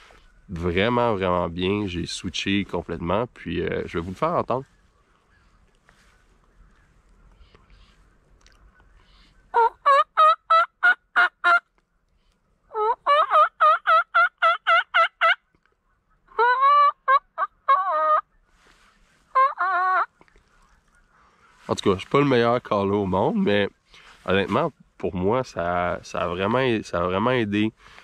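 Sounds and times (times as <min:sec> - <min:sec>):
turkey call yelping: 0:08.8 - 0:11.7, 0:12.7 - 0:18.4, 0:19.3 - 0:21.2.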